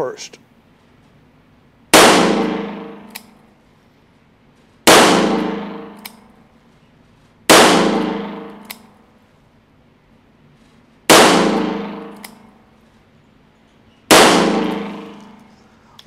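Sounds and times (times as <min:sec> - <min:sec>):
revolver shots echoing: 0:02.0 - 0:03.4, 0:04.9 - 0:06.3, 0:07.5 - 0:08.9, 0:11.1 - 0:12.5, 0:14.1 - 0:15.5
revolver hammer cocking click: 0:03.0 - 0:03.4, 0:05.9 - 0:06.3, 0:08.5 - 0:08.9, 0:12.1 - 0:12.5.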